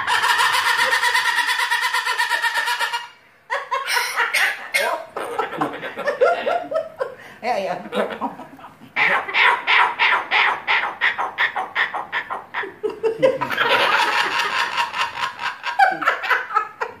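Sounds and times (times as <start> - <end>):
person laughing: 15.8 - 17.0.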